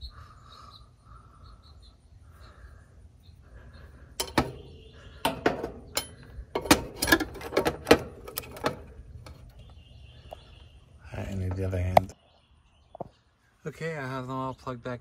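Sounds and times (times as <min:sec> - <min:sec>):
sharp clicks and knocks: 0:04.2 - 0:09.6.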